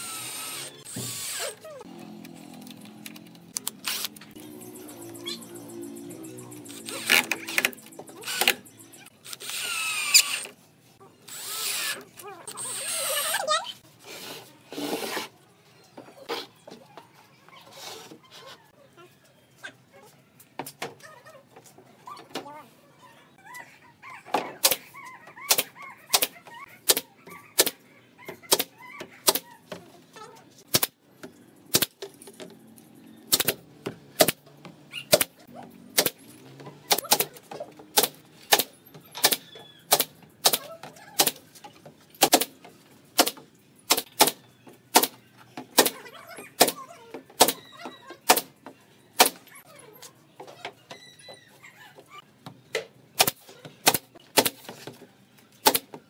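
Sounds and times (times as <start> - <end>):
pneumatic stapler firing: 33.3 - 33.6, 36.9 - 40.6.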